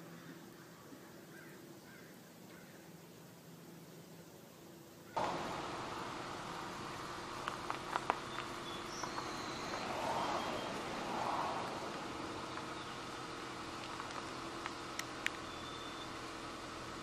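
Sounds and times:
steady hiss: 0.0 - 17.0
faint high bird chirps: 8.1 - 10.8, 12.3 - 13.2, 15.4 - 16.2
faint clicks: 13.8 - 15.4.

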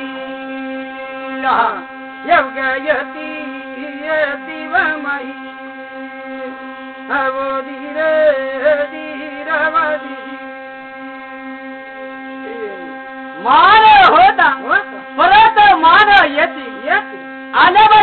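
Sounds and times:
humming drone of rubbed brass plate: 0.0 - 18.0
person chanting: 1.3 - 5.4, 6.4 - 10.4, 12.4 - 17.0.

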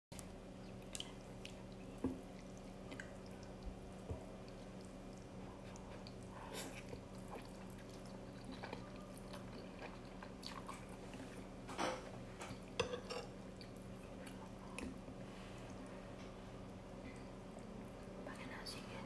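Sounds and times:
faint steady hum: 0.1 - 19.0
chewing noodles: 0.2 - 11.5.

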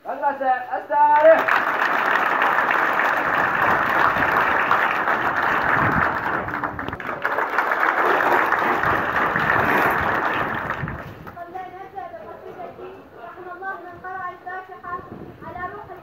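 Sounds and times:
children applauding: 1.2 - 11.4.

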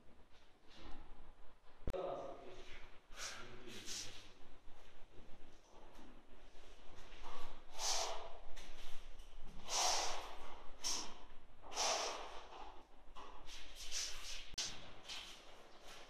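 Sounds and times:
person breathing out heavily: 3.1 - 4.1, 7.7 - 8.5, 9.6 - 12.6.

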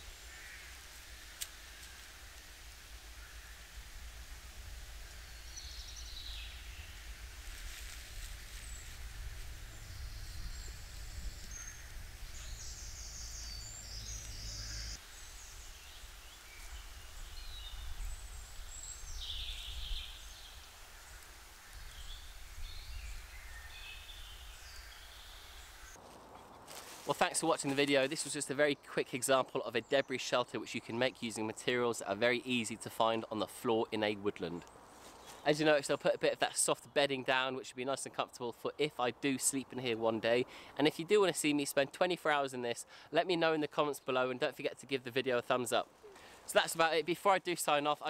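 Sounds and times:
low steady rumble: 2.2 - 15.0
birds chirping: 3.0 - 26.0.

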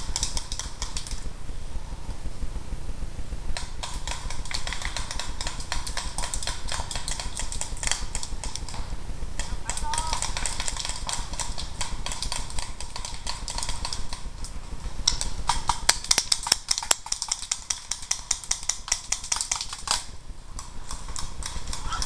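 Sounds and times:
low rumble: 1.2 - 3.6.

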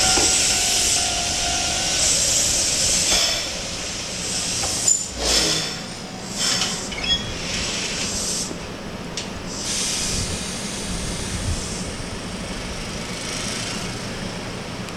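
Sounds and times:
air brake hisses: 4.2 - 8.6, 9.5 - 11.9.

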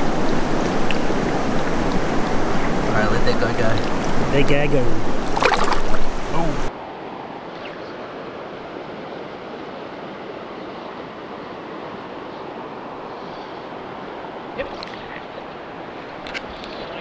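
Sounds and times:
stream flowing over stones: 0.0 - 6.7, 13.7 - 17.0.

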